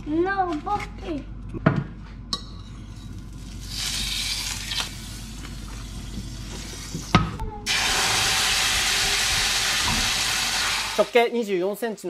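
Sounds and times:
butter sizzling in a frying pan: 7.7s - 11.1s.

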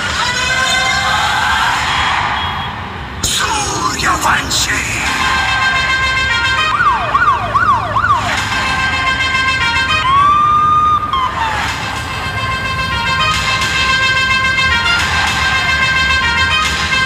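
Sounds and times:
siren wails: 5.0s - 17.0s.

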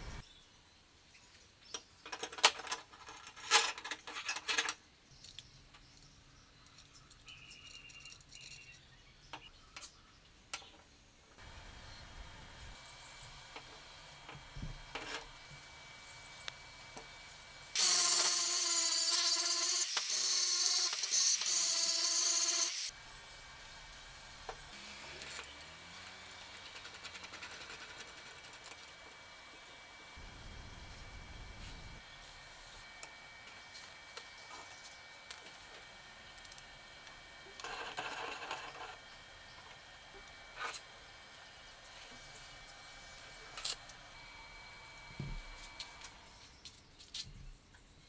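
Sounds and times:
small metal parts clicking: 6.6s - 8.8s
angle grinder cutting steel pipe: 12.7s - 26.7s.

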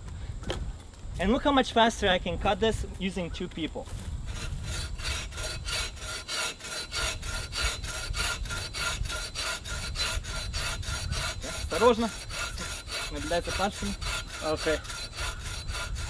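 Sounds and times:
saw rasping through log: 3.9s - 16.0s.

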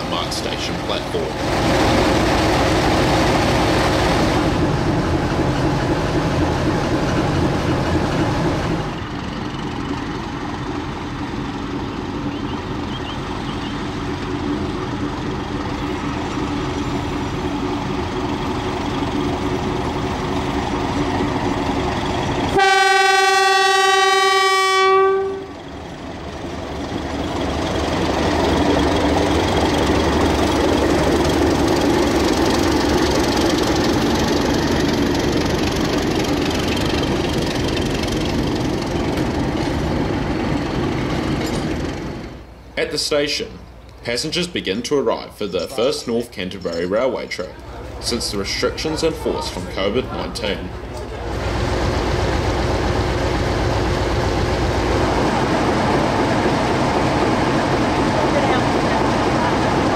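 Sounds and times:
locomotive engine running: 0.0s - 59.9s
locomotive horn blast: 22.5s - 25.6s.

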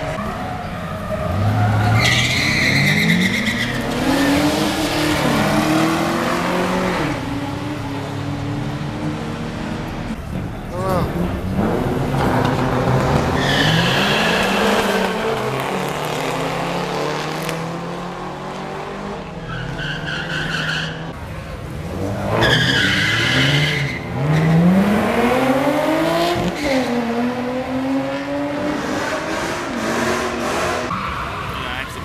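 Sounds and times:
tire squeals: 0.0s - 5.6s, 12.2s - 15.9s, 19.4s - 21.2s, 22.3s - 24.7s, 30.0s - 32.0s
drag racing engines: 0.0s - 32.0s.

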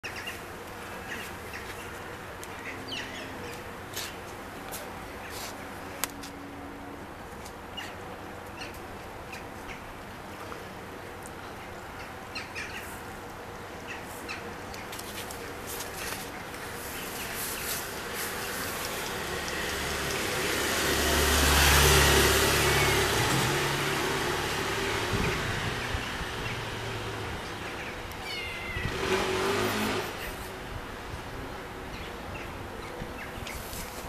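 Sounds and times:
motor vehicle passing: 16.9s - 31.3s.

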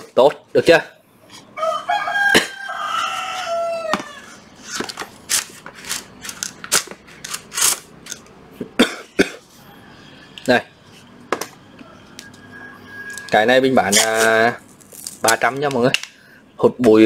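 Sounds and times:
rooster crowing: 1.5s - 4.5s, 9.6s - 10.4s, 11.5s - 13.8s.

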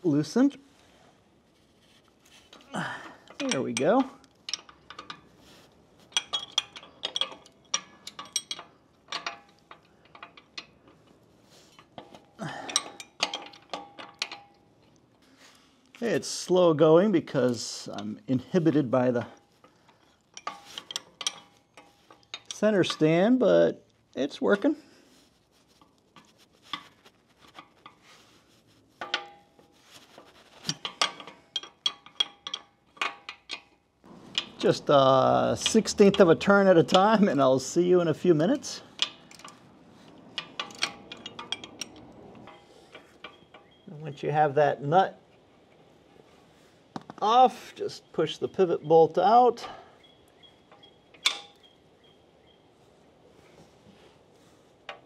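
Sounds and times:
wrench clinking on metal: 2.5s - 14.7s, 17.3s - 23.3s, 30.5s - 44.2s, 47.2s - 52.2s.

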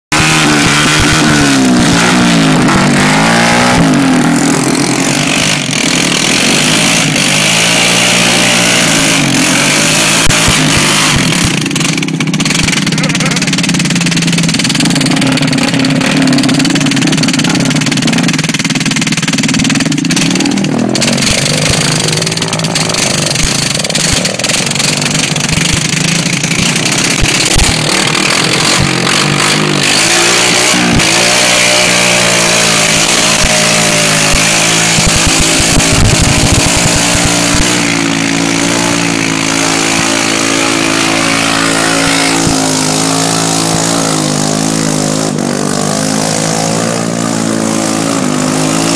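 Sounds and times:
all-terrain vehicle engine: 0.0s - 48.9s.

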